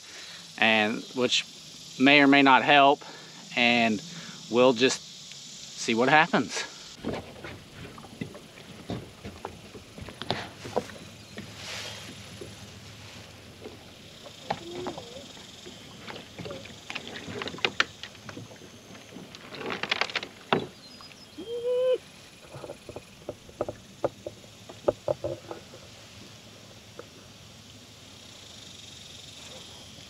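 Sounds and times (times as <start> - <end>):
water sloshing against hull: 7.0 - 21.4, 22.0 - 27.1
plastic kayak hull knocking: 22.6 - 25.6.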